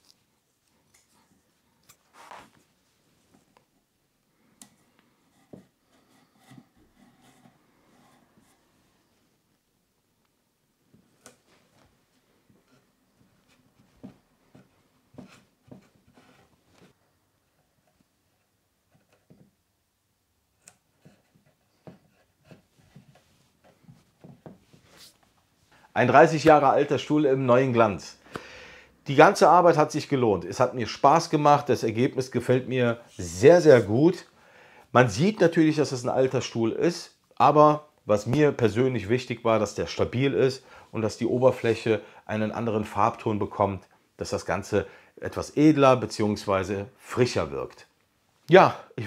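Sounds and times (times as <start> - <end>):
soft rustling: 10.8 - 19.5, 21.0 - 25.9.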